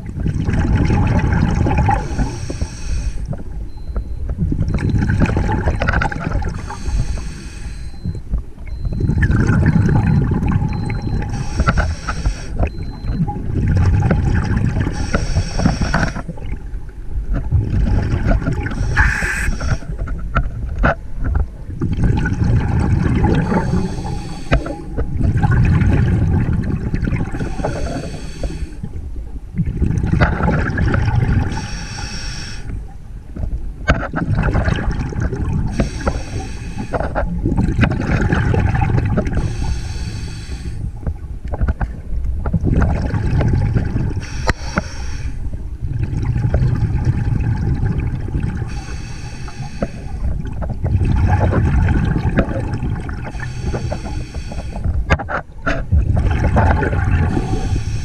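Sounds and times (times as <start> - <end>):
rumbling exhale of bubbles: 0.0 - 2.9, 3.8 - 16.7, 17.4 - 20.1, 21.7 - 31.7, 34.1 - 41.3, 42.0 - 55.1, 55.7 - 58.0
regulator hissing inhale: 2.0 - 3.3, 6.5 - 8.2, 11.3 - 12.6, 14.9 - 16.3, 18.7 - 19.9, 23.4 - 24.9, 27.4 - 28.8, 31.5 - 32.8, 35.7 - 37.2, 39.4 - 41.0, 44.2 - 45.5, 48.7 - 50.4, 53.3 - 54.9, 57.3 - 58.0.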